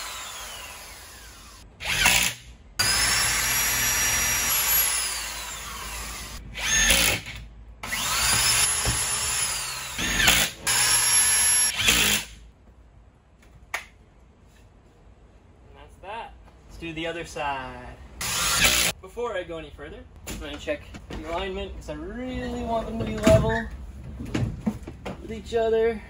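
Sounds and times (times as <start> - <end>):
electric drill boring into wood: 0.0 - 12.3, 18.2 - 18.9.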